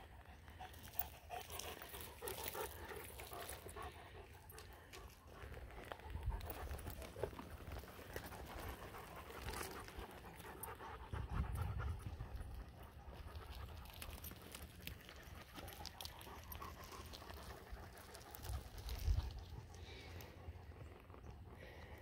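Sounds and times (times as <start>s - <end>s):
dog panting: 0.0s - 22.0s
wind rumbling on microphone: 11.0s - 13.7s, 18.4s - 20.0s.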